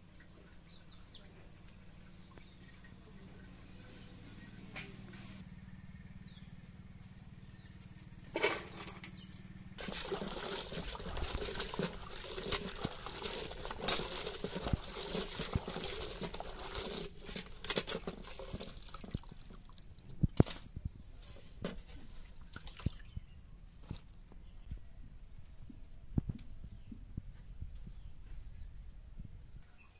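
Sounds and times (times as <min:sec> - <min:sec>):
water dripping: 0:09.8 - 0:20.6, 0:22.5 - 0:23.2
water sloshing and splashing: 0:09.8 - 0:20.8, 0:21.6 - 0:24.1.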